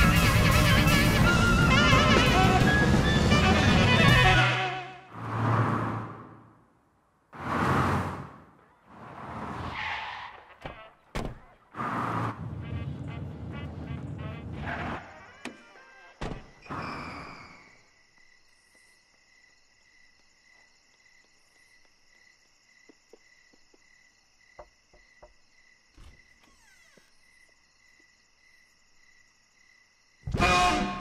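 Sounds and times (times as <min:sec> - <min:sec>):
crickets chirping: 0:05.1 - 0:31.0.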